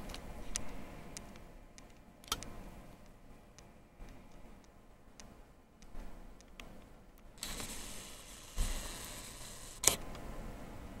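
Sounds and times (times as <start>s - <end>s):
steady hiss: 7.4s - 10.9s.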